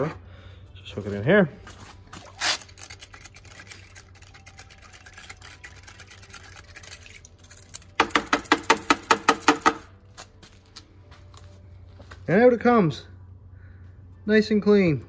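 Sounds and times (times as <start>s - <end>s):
liquid sloshing in bucket: 1.7s - 7.9s.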